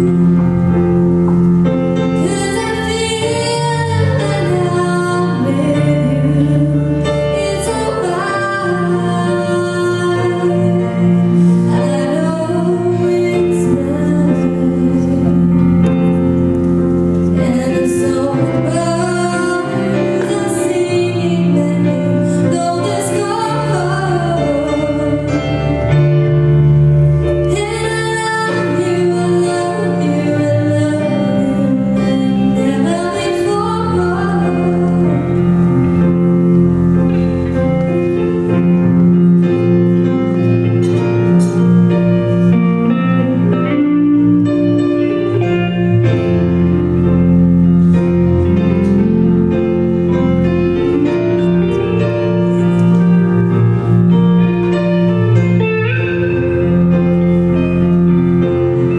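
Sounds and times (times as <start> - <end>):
electric guitar: 0.0 - 58.9
woman singing into microphone: 2.2 - 16.0, 17.3 - 25.9, 27.4 - 35.7.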